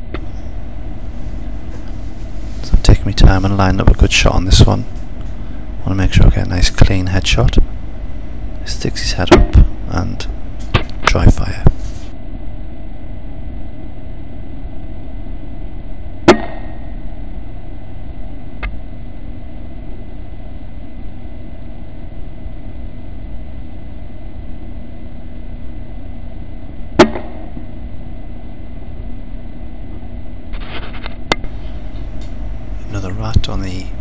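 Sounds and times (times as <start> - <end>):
air rifle shots: 27.0 - 27.5
steady hiss: 31.4 - 34.0.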